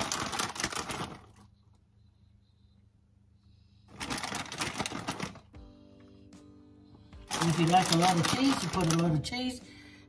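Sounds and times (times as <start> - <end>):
plastic bag crinkling: 0.0 - 1.5, 3.9 - 5.5, 7.3 - 9.6.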